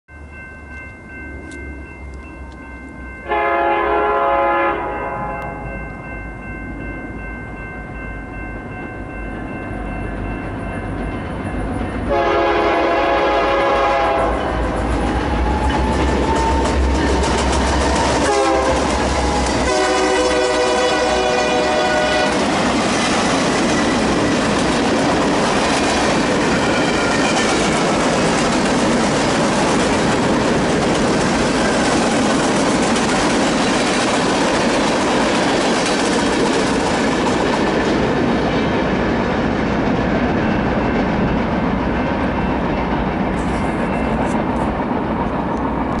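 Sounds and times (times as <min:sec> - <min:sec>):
locomotive horn: 0:03.3 - 0:05.6, 0:12.1 - 0:17.0, 0:17.8 - 0:22.5
train wheels rolling on rails: 0:07.9 - 0:46.0.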